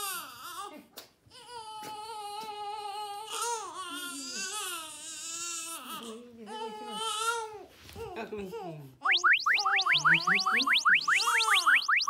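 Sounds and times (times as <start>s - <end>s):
newborn baby crying: 1.3s - 7.6s.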